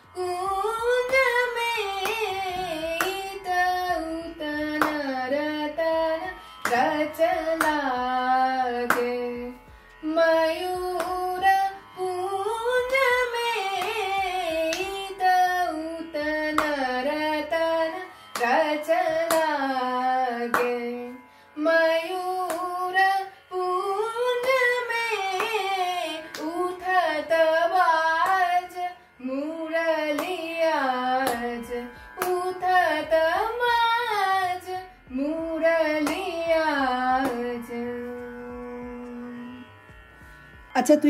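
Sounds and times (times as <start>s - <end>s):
woman singing classical vocals: 0.0s - 39.6s
hand claps keeping time: 0.2s - 10.1s, 10.8s - 11.7s, 12.7s - 21.0s, 22.4s - 23.1s, 24.2s - 27.0s, 28.1s - 28.8s, 30.0s - 32.8s, 35.9s - 38.4s.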